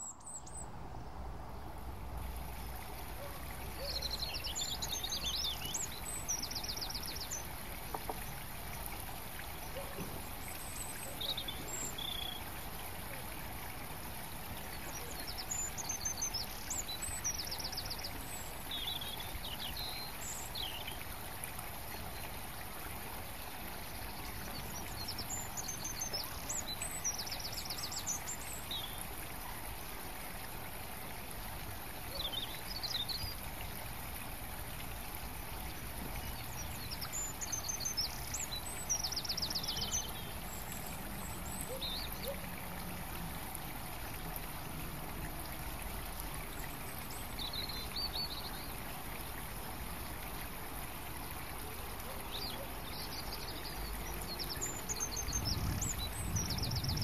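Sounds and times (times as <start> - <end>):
bird song with rapid trill: 0.0 - 0.7, 3.2 - 7.5, 9.7 - 12.5, 14.7 - 21.0, 24.1 - 29.0, 32.1 - 33.4, 36.2 - 40.6, 41.4 - 42.4, 52.1 - 57.0
songbirds singing: 0.0 - 57.0.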